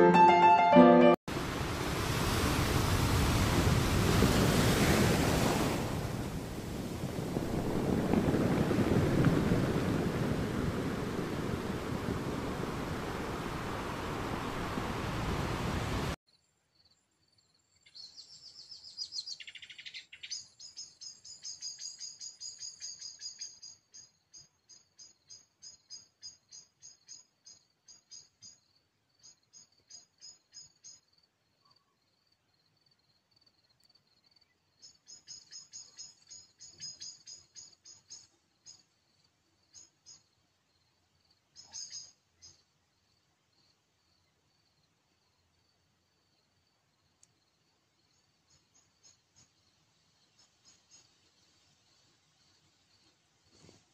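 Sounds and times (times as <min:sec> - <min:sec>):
surf washing over beach: 0:01.3 - 0:16.2
crickets chirping: 0:02.3 - 0:53.7.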